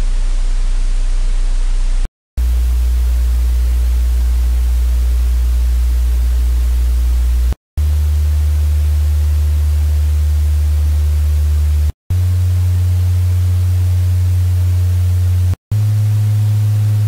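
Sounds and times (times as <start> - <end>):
static hiss: 0.0 - 8.6
deep electrical hum: 0.0 - 17.0.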